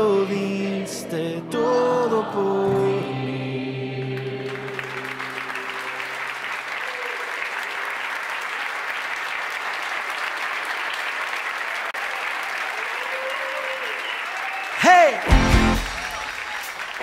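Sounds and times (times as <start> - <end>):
live music held notes: 0.0 - 7.8, 15.2 - 17.0
audience applauding: 4.1 - 17.0.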